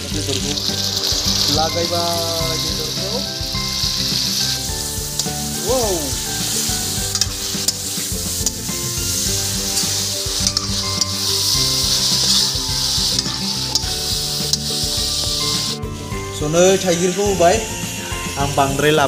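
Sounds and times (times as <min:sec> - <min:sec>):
meat sizzling in hot oil: 0:00.0 - 0:19.0
metal spatula scraping wok: 0:00.3 - 0:17.2
spatula clicking against pan: 0:05.2 - 0:05.4.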